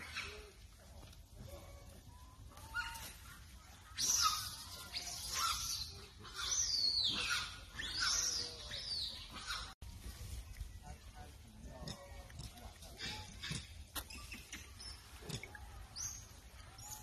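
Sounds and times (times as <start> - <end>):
monkey screaming: 3.9 - 8.4.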